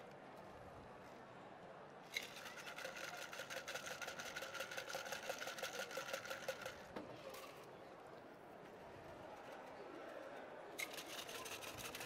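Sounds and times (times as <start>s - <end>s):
ice rattling in cocktail shaker: 2.2s - 6.8s, 10.8s - 12.0s.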